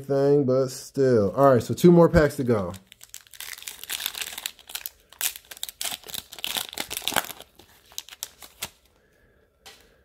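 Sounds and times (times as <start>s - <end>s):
wrapper tearing and crinkling: 2.6s - 8.9s.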